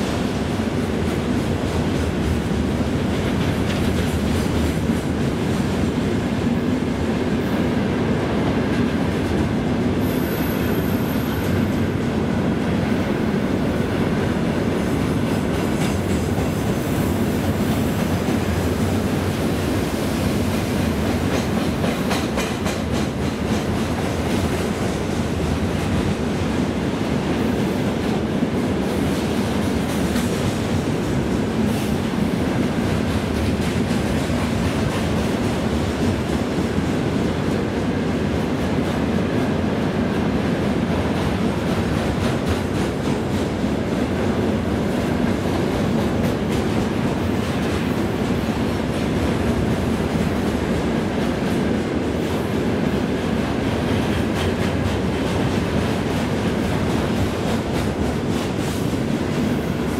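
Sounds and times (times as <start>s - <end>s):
train wheels rumbling on rails: 0.0s - 59.9s
high wheel squeal: 10.0s - 11.6s.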